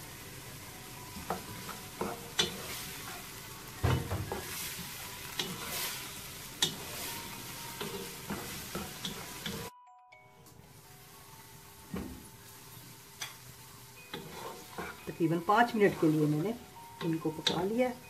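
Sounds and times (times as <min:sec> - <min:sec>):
soft sizzle: 0:00.0 - 0:18.0
spatula scraping in frying pan: 0:01.3 - 0:03.4, 0:04.2 - 0:09.7, 0:14.1 - 0:16.5.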